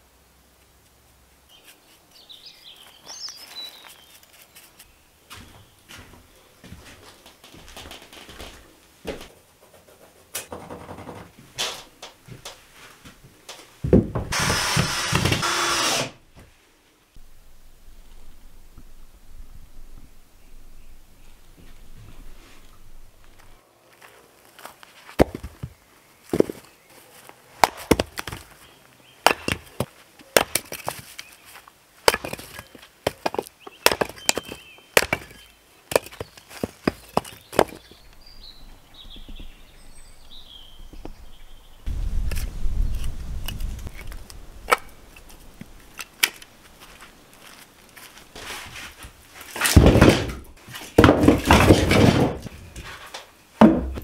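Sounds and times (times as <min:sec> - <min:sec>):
axe chopping firewood: 0:27.6 - 0:28.5, 0:29.2 - 0:31.0, 0:32.0 - 0:37.9, 0:49.5 - 0:52.6, 0:53.6 - 0:54.0
wood cracking apart: 0:29.2 - 0:37.9, 0:49.4 - 0:54.0.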